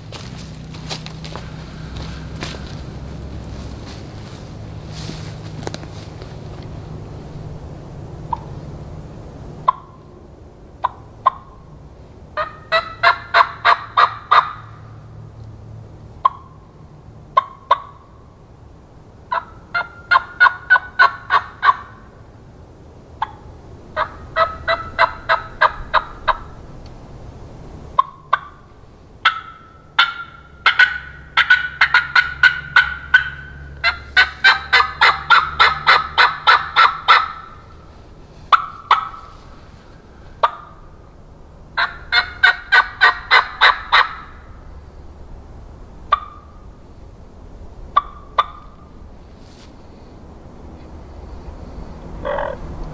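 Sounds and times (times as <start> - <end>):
turkey call clucks: 8.3 - 8.5, 9.6 - 10.1, 10.8 - 11.6, 12.4 - 14.8, 16.2 - 16.6, 17.3 - 18.1, 19.3 - 22.1, 23.2 - 23.4, 24.0 - 26.6, 28.0 - 37.8, 38.5 - 40.9, 41.8 - 44.5, 46.1 - 46.6, 47.9 - 48.9, 52.2 - 52.7
turkey call yelps: 9.7 - 10.0, 12.4 - 14.7, 17.4 - 18.0, 19.3 - 22.1, 24.0 - 26.5, 28.0 - 28.6, 29.2 - 37.8, 38.5 - 39.4, 40.4 - 40.8, 41.8 - 44.5, 46.1 - 46.5, 48.0 - 48.8, 52.2 - 52.6.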